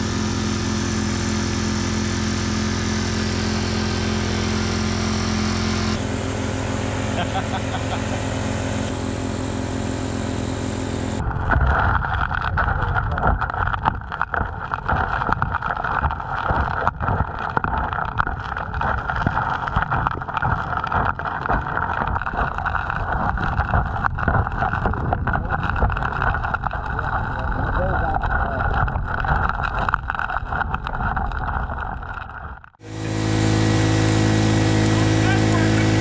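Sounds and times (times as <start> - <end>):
pump engine running: 0.0 - 32.2, 32.8 - 36.0
water rushing underwater: 0.6 - 36.0
gravel and stones knocking: 11.2 - 33.2.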